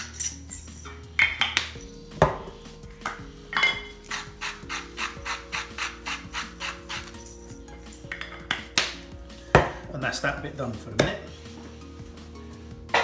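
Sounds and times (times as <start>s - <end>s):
pepper mill grinding: 3.6s - 8.2s.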